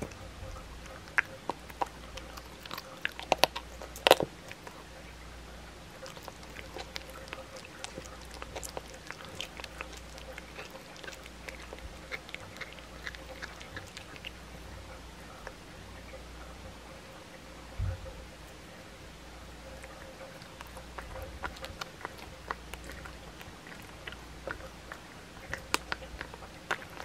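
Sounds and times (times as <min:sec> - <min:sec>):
cat crunching bones: 0:00.0 - 0:17.2, 0:19.6 - 0:27.0.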